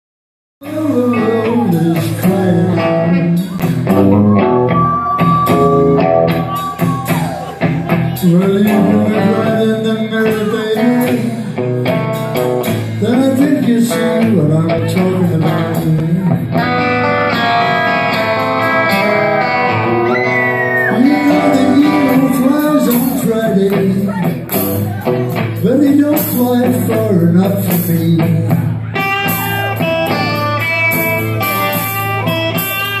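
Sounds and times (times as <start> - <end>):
person singing lead vocal: 0.6 - 3.9, 7.0 - 11.9, 12.7 - 16.6, 20.8 - 24.5, 25.6 - 28.9
drums: 0.6 - 33.0
electric bass: 0.6 - 33.0
electric guitar: 0.6 - 33.0.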